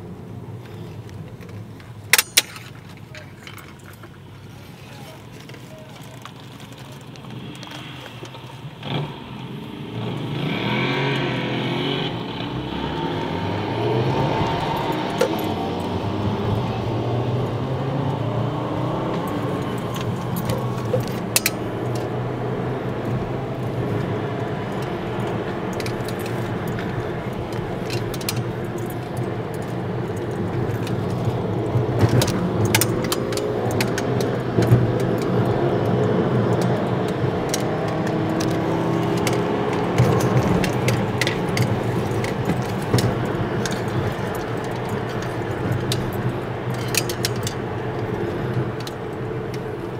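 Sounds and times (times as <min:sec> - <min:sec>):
road noise: 0:00.0 - 0:49.9
vehicle engine accelerating: 0:06.8 - 0:49.9
light rattling clicks: 0:19.1 - 0:22.2, 0:23.6 - 0:49.9.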